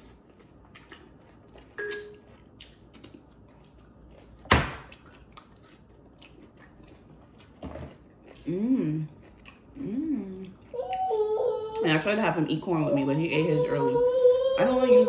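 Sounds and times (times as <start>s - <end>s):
cucumber crunching while chewed: 0.0s - 11.8s.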